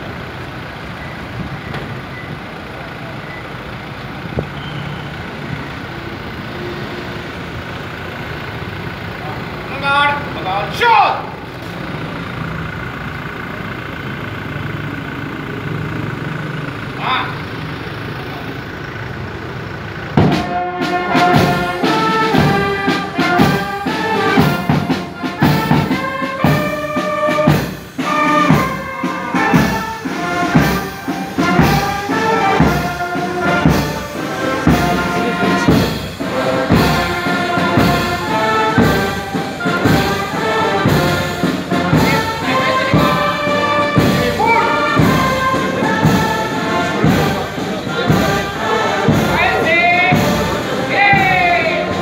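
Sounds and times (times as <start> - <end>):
brass band playing: 20.1 - 52.0.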